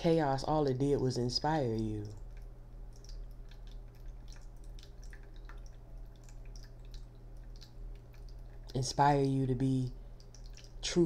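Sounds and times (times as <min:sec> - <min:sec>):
faint low hum: 0:00.0 - 0:11.0
soft ticks and clicks: 0:01.7 - 0:09.3, 0:10.2 - 0:10.8.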